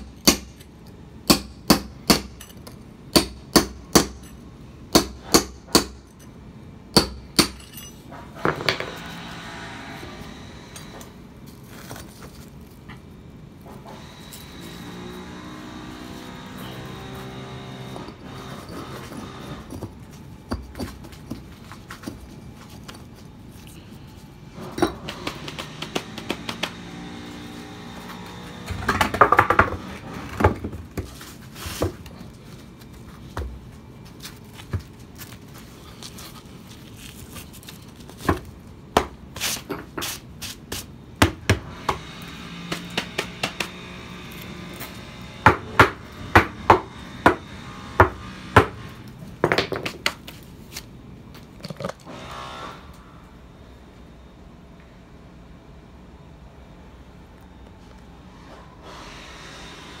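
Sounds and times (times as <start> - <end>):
hammer knocking on concrete: 45.4 - 50.2.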